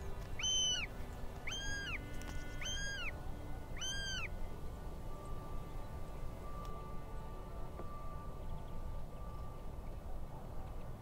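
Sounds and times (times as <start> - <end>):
bird of prey calling: 0.4 - 4.4.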